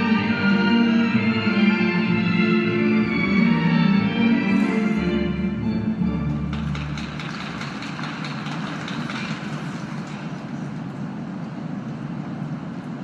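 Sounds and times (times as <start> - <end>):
audience applauding: 6.5 - 10.9.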